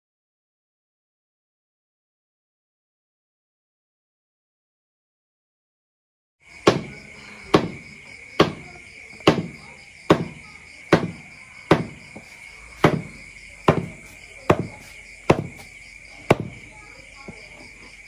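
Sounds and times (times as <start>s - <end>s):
high insect trill: 6.4s - 18.0s
cleaver chopping meat on plastic board: 6.6s - 15.7s, 16.3s - 16.7s.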